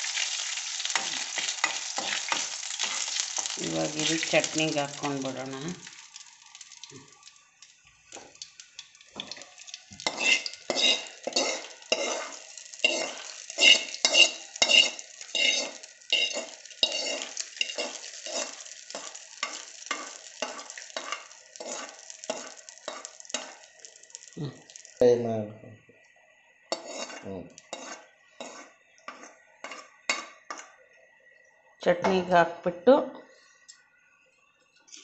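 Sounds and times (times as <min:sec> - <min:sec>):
hot oil sizzling: 0:00.0 - 0:25.4, 0:26.0 - 0:32.4
steel spoon scraping a pan: 0:00.1 - 0:04.4, 0:10.0 - 0:23.7, 0:26.7 - 0:30.8.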